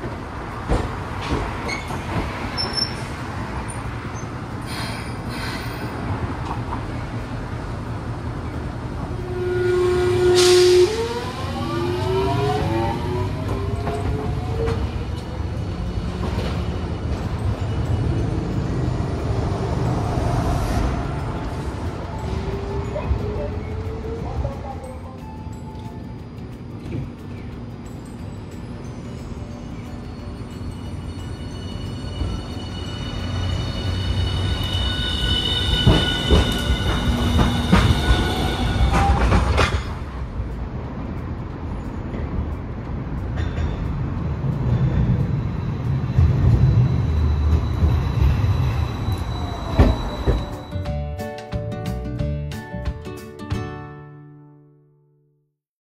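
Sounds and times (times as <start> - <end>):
tram motor whine: 0.0 - 40.8, 41.5 - 50.9
wheels rumbling on rails: 0.0 - 51.2
wheels clacking over rail joints: 35.7 - 50.7.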